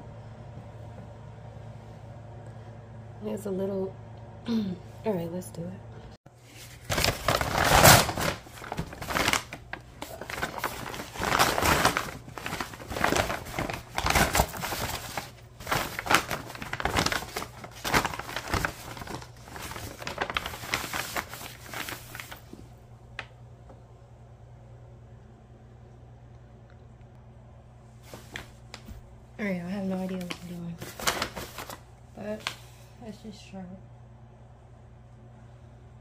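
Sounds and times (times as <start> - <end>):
paper crinkling and rustling: 6.4 - 22.6, 28.0 - 29.0, 29.8 - 32.8.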